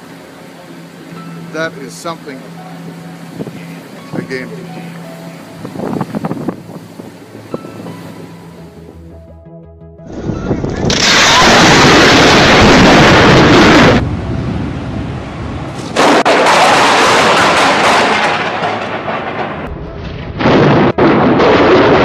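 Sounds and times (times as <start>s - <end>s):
thunder rumbling: 10.1s - 22.0s
loud cracks of thunder: 10.9s - 14.2s, 16.0s - 22.0s.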